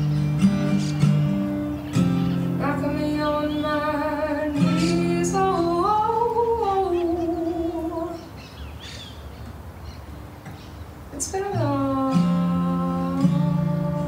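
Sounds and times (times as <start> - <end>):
acoustic guitar strumming: 0.0 - 8.3, 10.1 - 14.0
woman singing: 2.6 - 8.3, 11.2 - 14.0.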